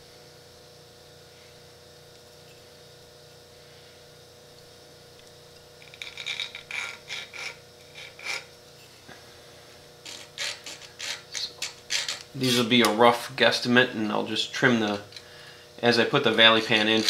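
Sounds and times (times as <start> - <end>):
faint steady hum: 0.0 - 17.0
scriber scraping metal: 5.8 - 8.6, 10.0 - 12.9, 14.7 - 15.3, 16.2 - 17.0.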